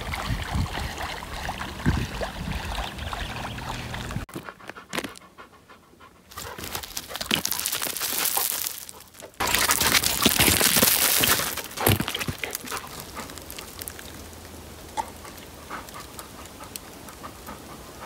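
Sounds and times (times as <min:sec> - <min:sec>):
crunching and crackling: 0:04.3 - 0:05.3, 0:06.3 - 0:16.9.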